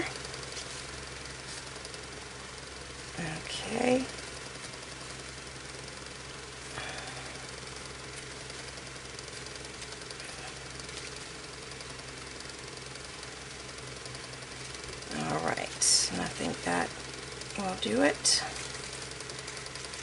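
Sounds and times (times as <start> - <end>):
ribbon rustling: 0.0 - 1.9, 17.9 - 20.0
low mechanical hum: 0.0 - 20.0.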